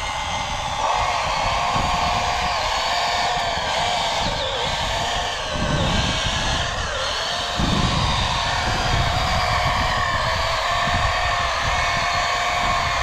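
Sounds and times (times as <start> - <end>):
small electric motor whine: 0.0 - 13.0.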